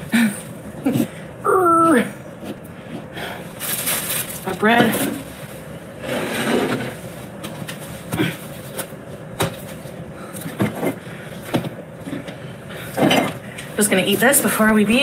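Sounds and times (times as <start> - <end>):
knocks and clatter of handling: 6.7 - 13.5.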